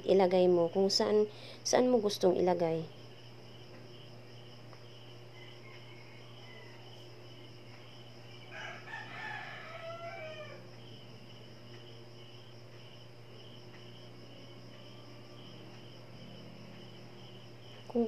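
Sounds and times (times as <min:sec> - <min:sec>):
crickets chirping: 0:00.0 - 0:18.0
rooster crowing: 0:05.3 - 0:07.2, 0:08.4 - 0:10.7.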